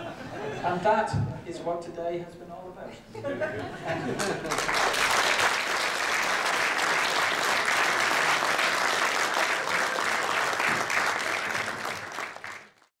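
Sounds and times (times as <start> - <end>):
audience applauding: 4.2 - 12.9.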